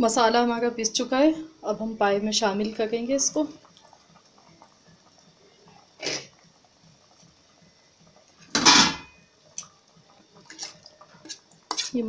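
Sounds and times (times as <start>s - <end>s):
broth boiling: 0.0s - 12.0s
metal cookware clattering: 8.5s - 9.2s.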